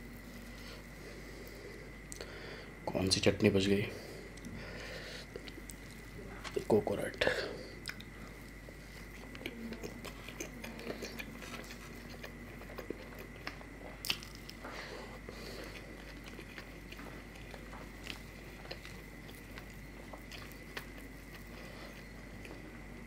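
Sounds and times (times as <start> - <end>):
man chewing food: 0.0 - 2.8, 3.9 - 23.0
faint high-pitched whine: 0.0 - 23.0
crisp food being torn: 9.1 - 14.6.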